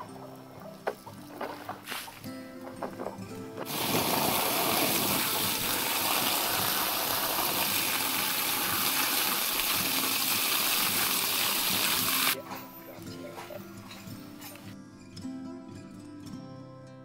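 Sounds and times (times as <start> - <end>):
water gushing from hose: 3.7 - 12.4
water splashing off carcass: 3.7 - 12.4.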